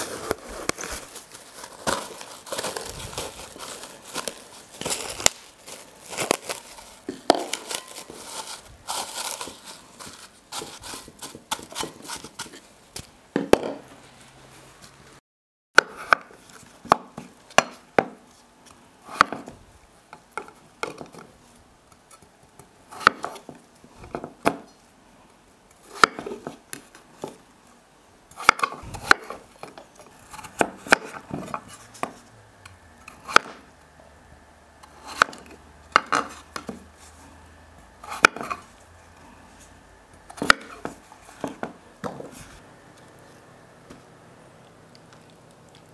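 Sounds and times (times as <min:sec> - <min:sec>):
cling film crinkling: 0:00.0 - 0:12.3
knife chopping on wooden board: 0:40.4 - 0:42.2.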